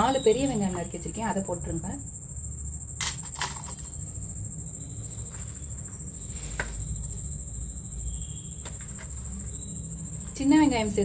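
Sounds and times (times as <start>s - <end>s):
high-pitched insect trill: 0.0s - 11.0s
low background hum: 0.0s - 11.0s.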